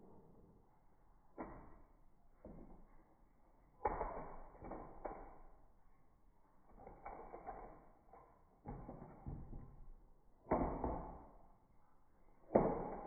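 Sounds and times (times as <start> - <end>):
toy cars clattering on plastic track: 6.7 - 9.2.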